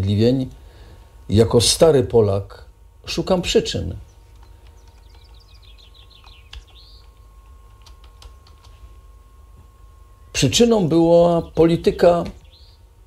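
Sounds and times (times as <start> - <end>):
low steady hum: 0.0 - 13.0
faint bird chirping: 3.5 - 13.0.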